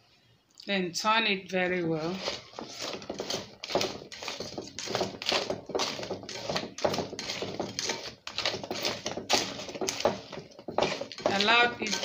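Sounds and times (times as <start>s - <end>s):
yam pieces tumbling in plastic sieve: 2.0s - 12.0s.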